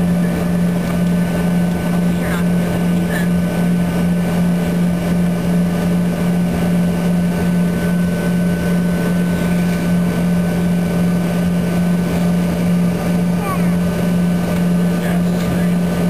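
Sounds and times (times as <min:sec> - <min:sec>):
aircraft cabin engine drone: 0:00.0 - 0:16.0.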